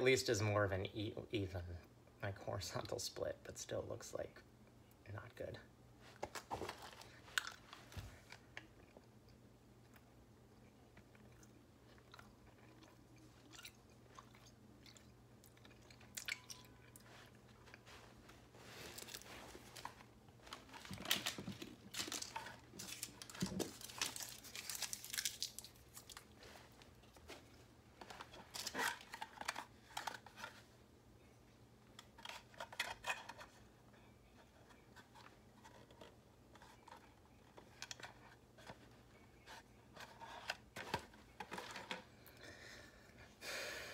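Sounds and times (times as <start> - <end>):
paper candy wrapper crinkling: 18.9 - 26.4.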